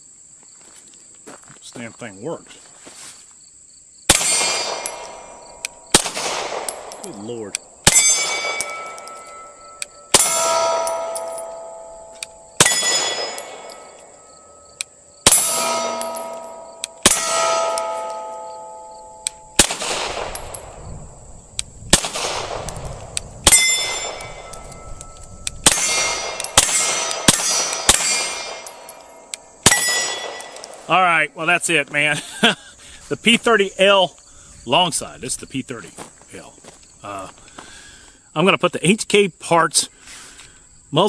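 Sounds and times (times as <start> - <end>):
pistol shots: 4.1 - 14.6, 15.2 - 20.8, 21.9 - 24.9, 25.5 - 30.9
steel plate target ringing: 4.1 - 20.8, 22.2 - 30.9.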